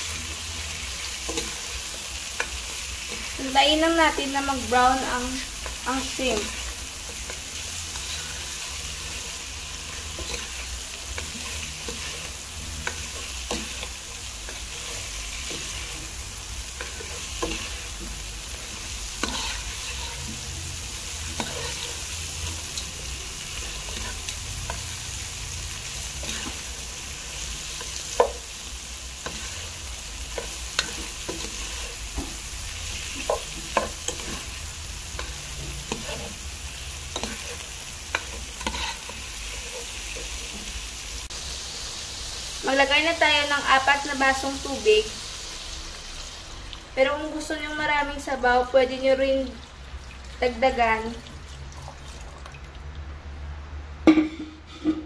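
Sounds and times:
shrimp sizzling in hot oil: 0:00.0 - 0:53.3
spatula scraping and tapping pan: 0:01.2 - 0:03.4, 0:05.6 - 0:16.1, 0:16.7 - 0:20.6, 0:21.2 - 0:22.9, 0:26.1 - 0:26.7, 0:27.7 - 0:28.5, 0:29.2 - 0:32.4, 0:33.0 - 0:36.4, 0:37.0 - 0:40.8.

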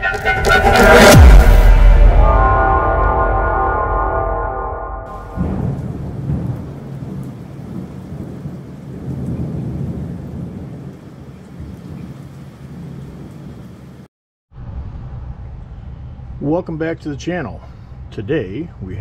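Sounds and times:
music: 0:00.0 - 0:05.5
low rolling rumble: 0:05.1 - 0:10.6, 0:14.5 - 0:17.1.

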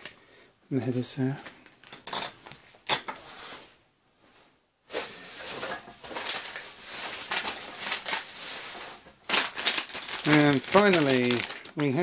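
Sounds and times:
plastic bag crinkling: 0:05.4 - 0:12.0.

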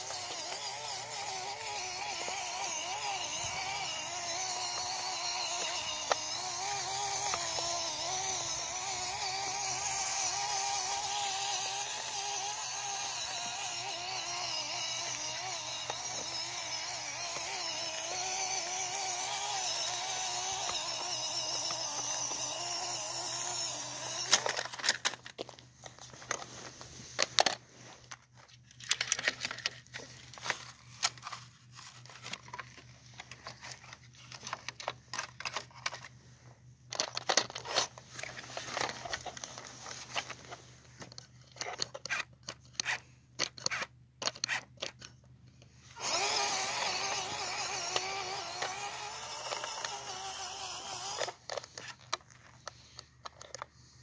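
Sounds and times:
electric motor whining: 0:00.0 - 0:25.1, 0:46.0 - 0:51.8.

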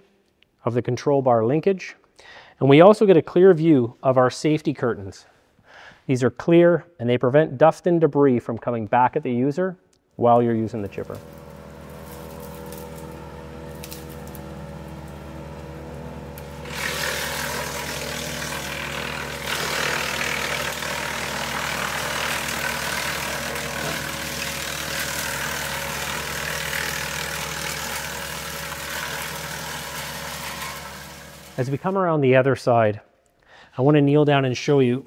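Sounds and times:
wood chipper engine humming: 0:10.6 - 0:31.8
branch being chipped: 0:10.9 - 0:15.1.

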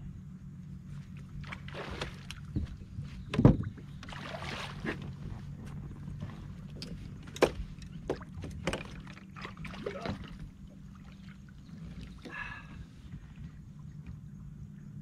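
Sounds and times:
electric trolling motor hum: 0:00.0 - 0:15.0
knocks and clicks of gear handled: 0:06.7 - 0:09.0.

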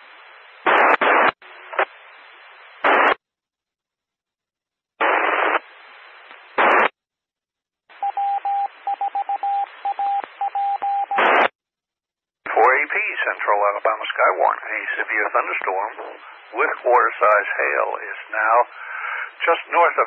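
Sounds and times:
faint radio hiss: 0:00.0 - 0:03.2, 0:05.0 - 0:06.9, 0:07.9 - 0:11.5, 0:12.5 - 0:20.0
squelch static bursts: 0:00.1 - 0:03.2, 0:05.0 - 0:07.0, 0:08.0 - 0:11.6, 0:12.5 - 0:20.0
morse code beeping tone: 0:08.0 - 0:11.3.

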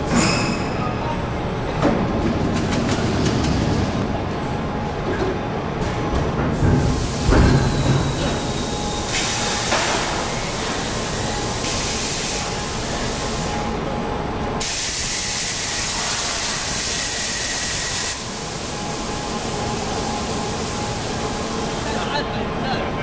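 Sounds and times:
loud hiss bursts: 0:06.8 - 0:13.5, 0:14.6 - 0:18.8.

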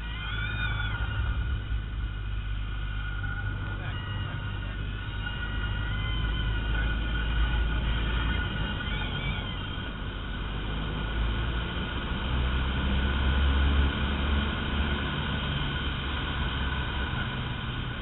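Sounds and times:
stall warning horn wailing: 0:00.0 - 0:11.3
aircraft engine rumble: 0:00.0 - 0:18.0.

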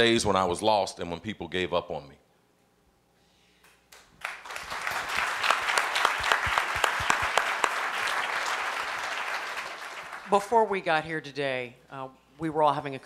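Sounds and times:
audience applause: 0:04.2 - 0:10.6.

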